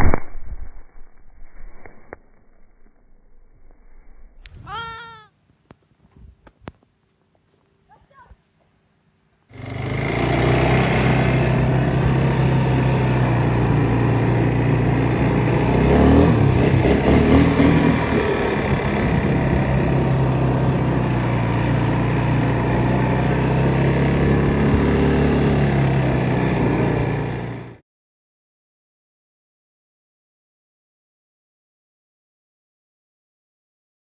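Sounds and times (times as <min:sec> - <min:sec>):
atv engine running: 0:09.5 - 0:27.8.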